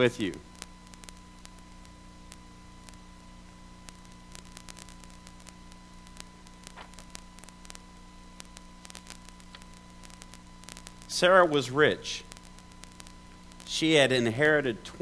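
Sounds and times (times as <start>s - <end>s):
electrical hum: 0.0s - 15.0s
static hiss: 0.0s - 15.0s
faint clicks: 0.6s - 11.1s.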